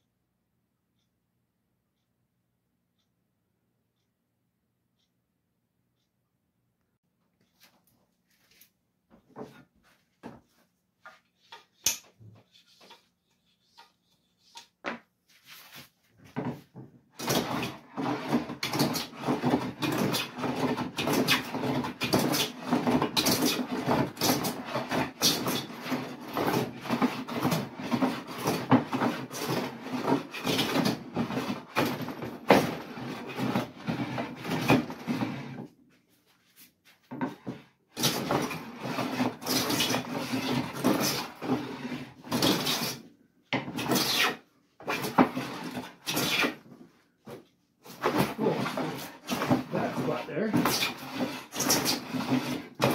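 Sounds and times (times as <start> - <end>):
plane shaving wood: 10.5 - 35.7, 36.4 - 52.9.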